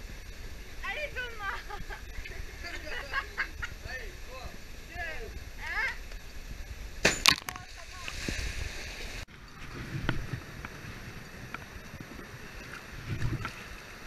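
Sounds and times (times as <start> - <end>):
churned water hissing: 0.0 - 7.0.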